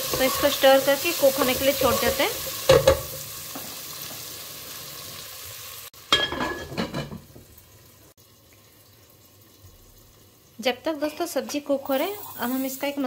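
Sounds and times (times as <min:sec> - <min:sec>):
kitchenware clattering: 0:00.0 - 0:04.2, 0:06.1 - 0:07.5
vegetables sizzling in oil: 0:00.0 - 0:13.0.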